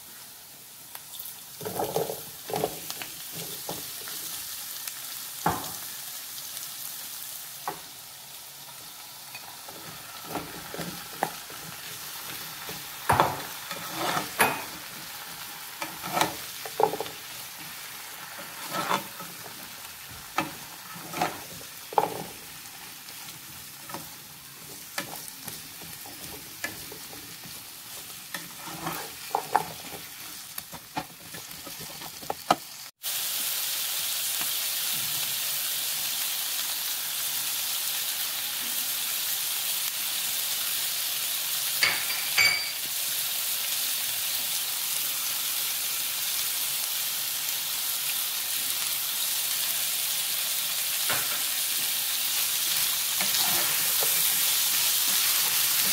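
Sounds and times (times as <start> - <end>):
vegetables sizzling in a pan: 0.0 - 55.9
spatula scraping a pan: 9.3 - 32.6, 51.3 - 55.9.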